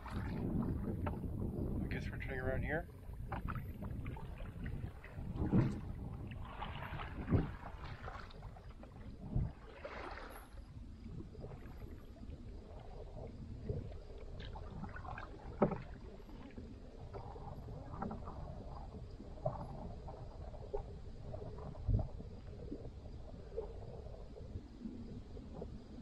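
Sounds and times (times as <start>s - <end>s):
paddle strokes swishing through water: 0.0s - 26.0s.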